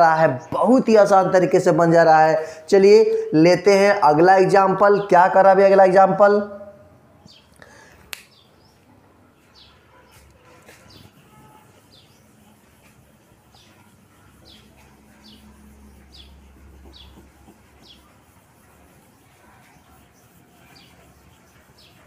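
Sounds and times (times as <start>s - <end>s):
small bird chirping: 13.5s - 18.4s.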